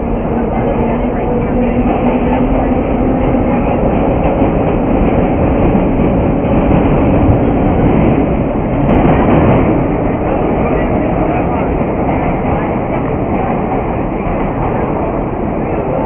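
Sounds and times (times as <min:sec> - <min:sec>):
subway wheels on rails: 0:00.0 - 0:16.0.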